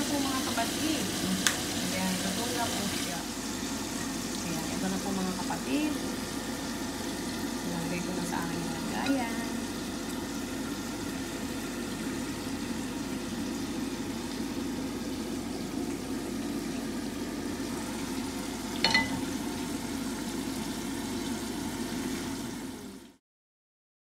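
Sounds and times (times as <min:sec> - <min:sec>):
metal pan clinking on plate: 0:18.8 - 0:19.3.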